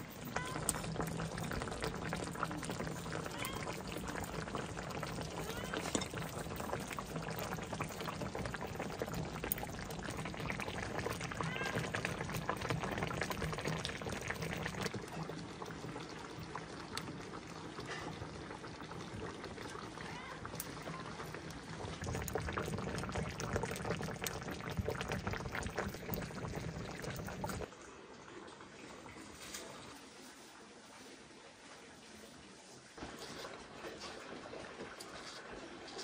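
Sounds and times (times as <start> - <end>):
liquid crackling and clicking: 0.0 - 27.7.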